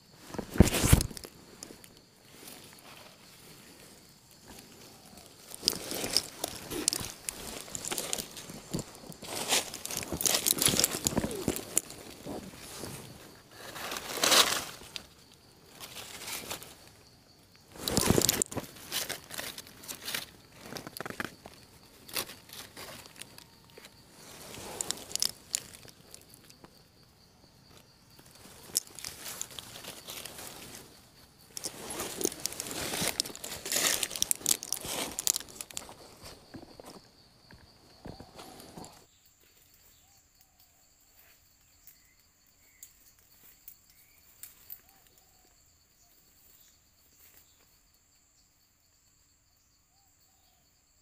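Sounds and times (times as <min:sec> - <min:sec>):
footsteps crunching through dry leaves: 0:05.4 - 0:15.1, 0:31.6 - 0:36.6.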